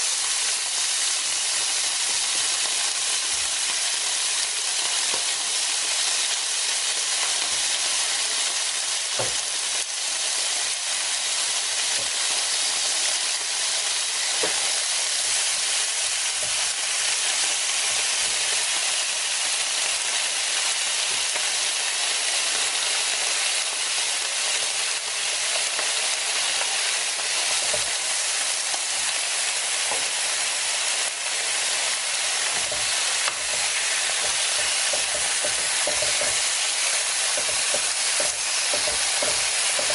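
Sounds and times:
meat sizzling on a grill plate: 0.0s - 39.9s.

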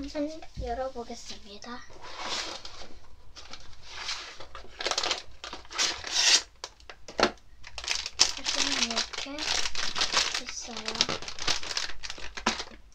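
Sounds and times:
plastic packets crinkling: 3.3s - 7.0s, 7.6s - 12.9s.

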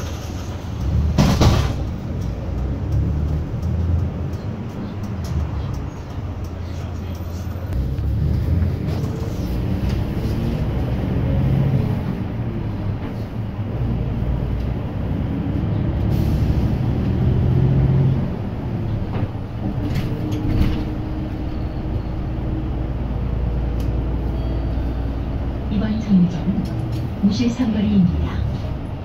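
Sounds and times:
bus engine running: 0.0s - 29.0s.

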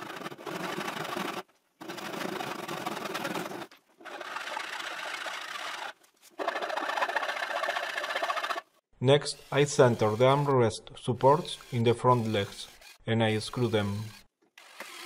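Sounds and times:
saw cutting wood: 0.0s - 15.0s.

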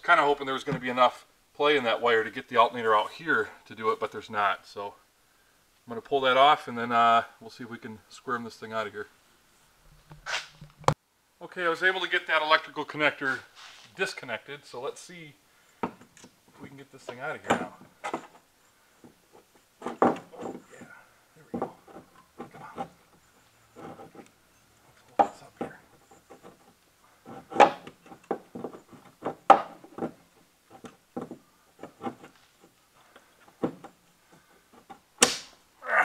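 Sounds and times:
metal knocks and clunks: 19.8s - 23.2s, 25.1s - 32.4s.

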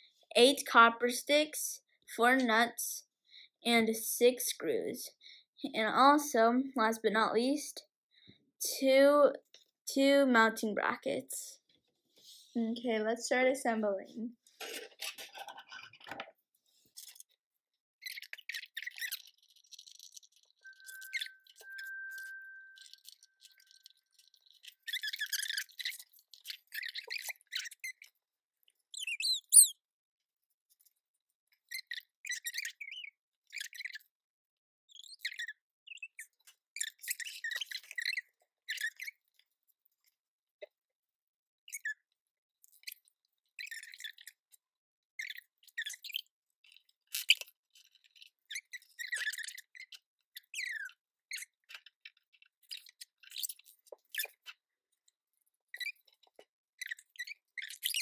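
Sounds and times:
small parts squeaking: 16.8s - 17.4s, 18.0s - 29.8s, 30.7s - 34.2s, 34.9s - 40.8s, 41.6s - 44.6s, 45.2s - 58.0s
small parts clicking and scraping: 18.1s - 28.2s, 45.2s - 50.6s.

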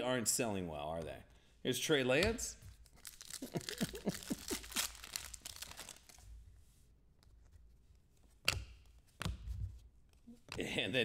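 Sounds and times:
wrapper tearing and crinkling: 2.8s - 6.2s.

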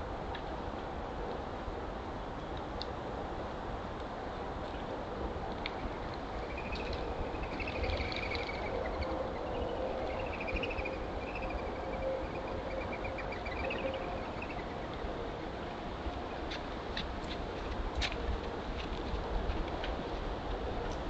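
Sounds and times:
low hiss and hum: 0.0s - 21.0s
animal trilled chirping: 6.4s - 14.8s.

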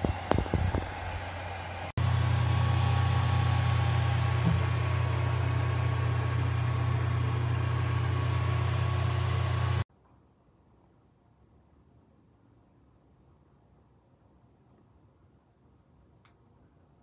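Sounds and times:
fan heater humming: 0.0s - 9.9s.

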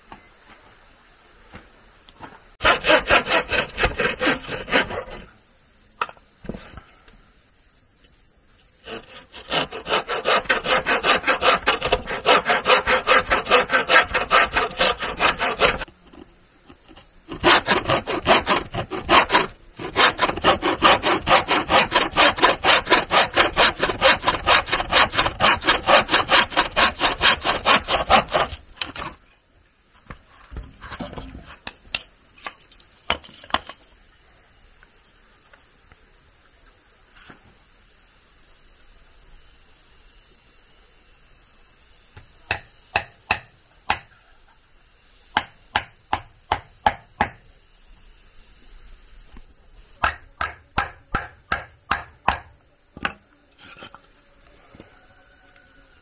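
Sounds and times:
insects buzzing: 0.0s - 56.0s
hand saw cutting: 2.6s - 5.3s, 8.8s - 15.9s, 16.9s - 29.2s, 50.1s - 52.4s
sharp knocks: 50.0s - 53.2s.

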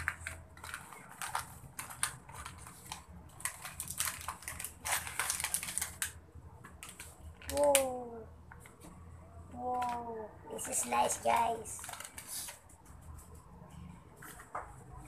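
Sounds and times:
plastic packaging crinkling: 0.0s - 6.2s, 11.4s - 12.7s.

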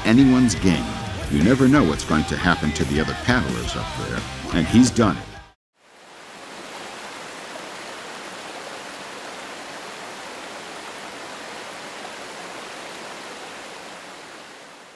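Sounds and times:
whitewater rushing: 5.9s - 14.9s.

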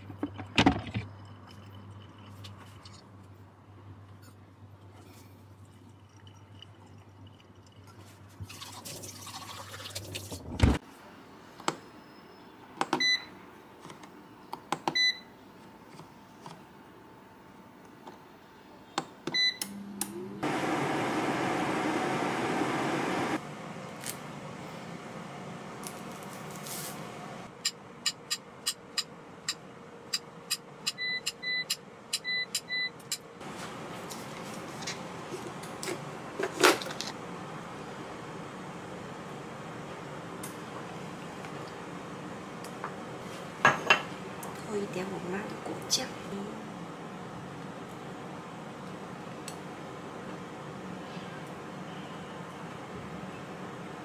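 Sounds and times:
electronic appliance beeps: 11.8s - 13.4s, 14.9s - 15.3s, 19.3s - 22.2s, 27.6s - 33.2s.

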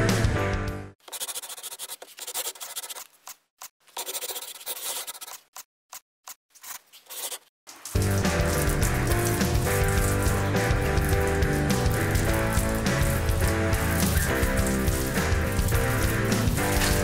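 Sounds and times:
music: 0.0s - 1.0s, 8.0s - 17.0s
pen scratching on paper: 1.0s - 5.6s, 6.6s - 7.5s.

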